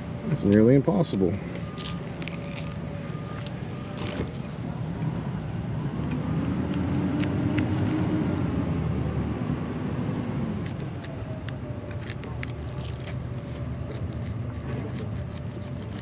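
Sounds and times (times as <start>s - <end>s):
knife cutting fish skin: 10.6s - 16.0s.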